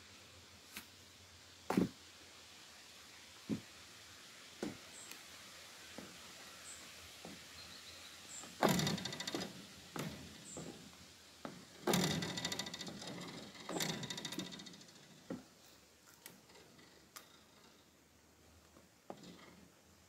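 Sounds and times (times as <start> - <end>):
footsteps on wooden planks: 1.7 - 2.0, 3.5 - 3.7, 4.6 - 4.8, 7.2 - 7.5, 8.4 - 12.1.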